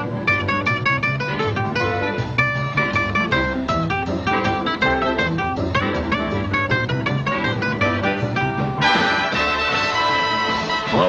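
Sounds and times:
boogie-woogie rhythm over bass: 0.0 - 11.0
brass section held chord: 8.8 - 11.0.

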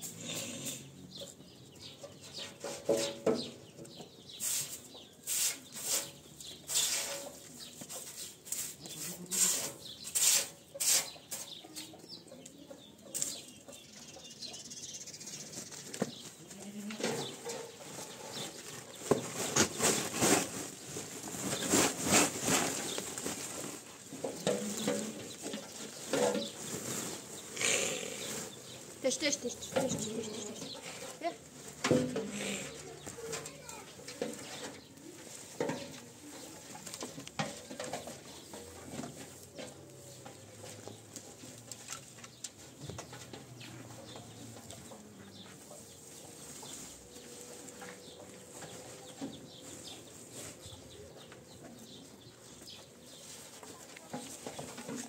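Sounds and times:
broom sweeping metal trough: 4.4 - 11.5
fodder rustling: 15.5 - 35.7.

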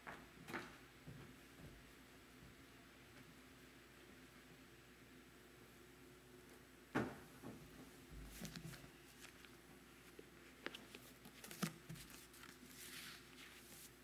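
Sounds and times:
soft rustle: 8.2 - 14.0.

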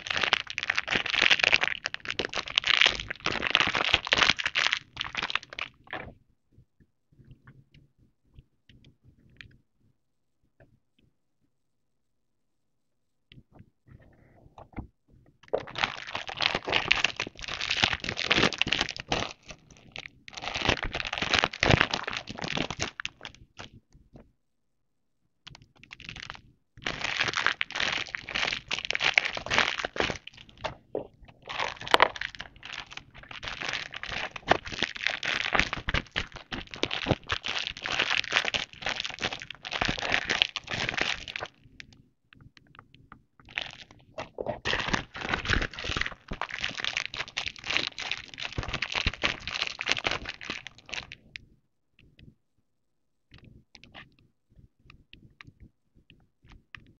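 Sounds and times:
plastic pouches crinkling: 0.0 - 6.1, 15.5 - 23.3, 26.0 - 41.6, 43.5 - 51.2.

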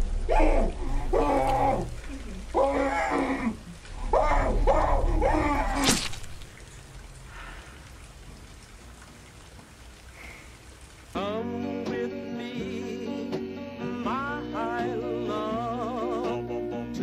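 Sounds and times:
muffled cries of gagged man: 0.1 - 5.9.

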